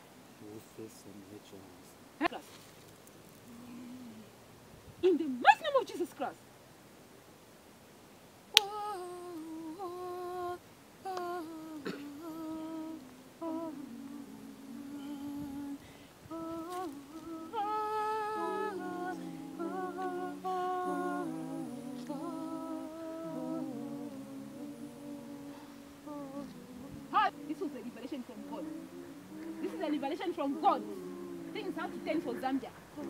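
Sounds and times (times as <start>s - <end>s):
lower voice humming harmony: 3.4s - 5.2s, 8.6s - 33.0s
woman humming a hymn: 3.5s - 4.4s, 8.6s - 33.0s.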